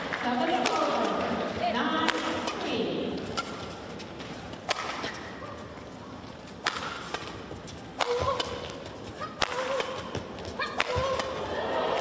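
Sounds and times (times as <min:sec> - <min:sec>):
racket striking shuttlecock: 0:00.0 - 0:03.8, 0:04.6 - 0:05.7, 0:06.5 - 0:11.4
shoes squeaking on court: 0:02.4 - 0:11.4.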